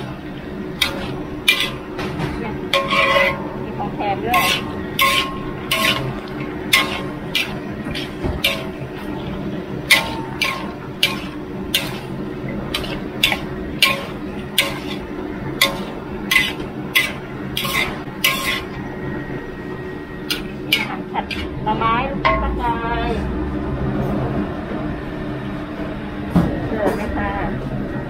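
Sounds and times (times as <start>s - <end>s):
steady low hum: 0.0s - 28.0s
metal spatula scraping a wok: 0.8s - 2.0s, 2.7s - 3.6s, 4.2s - 18.8s, 20.2s - 21.6s.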